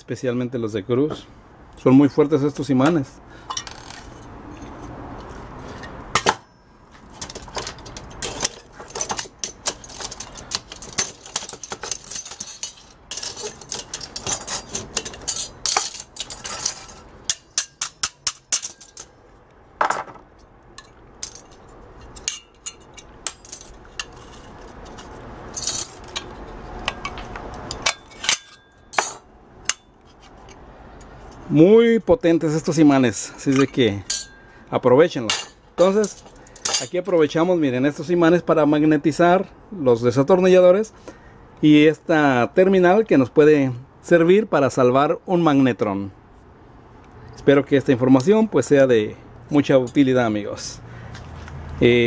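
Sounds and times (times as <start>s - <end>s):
sheet metal parts clinking: 7.2s - 19.2s, 20.8s - 30.6s, 33.4s - 34.5s, 35.2s - 37.2s.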